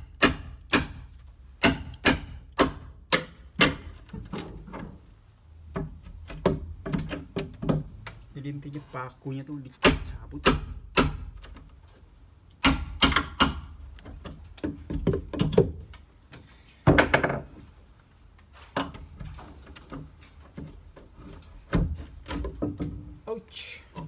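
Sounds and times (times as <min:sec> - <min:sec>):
hammer striking nails: 0:00.0 - 0:04.1, 0:09.8 - 0:11.5, 0:12.6 - 0:15.8.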